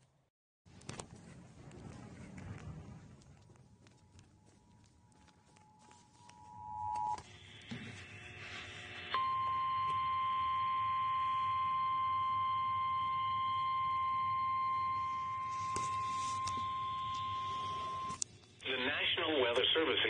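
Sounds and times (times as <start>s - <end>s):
steady attention tone: 4.2s - 18.2s.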